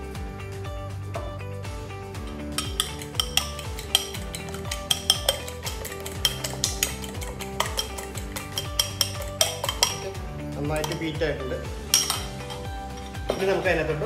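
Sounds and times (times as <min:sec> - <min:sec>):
background music: 0:00.0 - 0:14.0
utensil clicking against bowl: 0:02.5 - 0:10.2.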